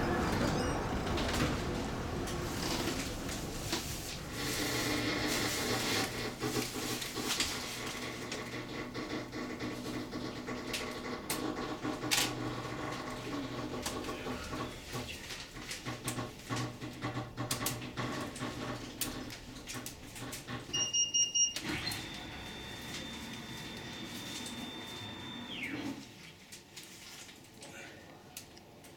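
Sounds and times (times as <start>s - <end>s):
funicular car rumbling: 0.0s - 7.3s
wheels knocking on rails: 6.1s - 15.1s.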